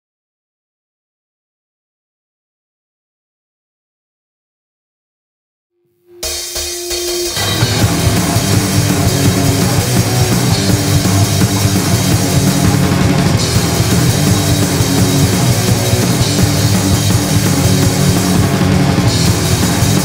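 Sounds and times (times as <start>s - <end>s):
loud rock band playing: 6.2s - 20.0s.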